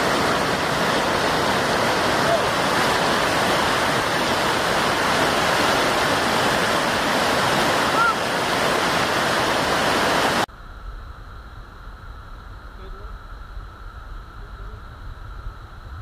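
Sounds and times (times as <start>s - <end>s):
waterfall roaring: 0.0s - 10.5s
steady hiss: 0.0s - 16.0s.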